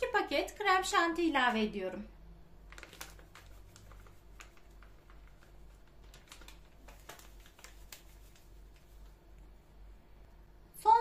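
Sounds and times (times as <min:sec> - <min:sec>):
paper sachet crinkling: 0:02.6 - 0:09.4.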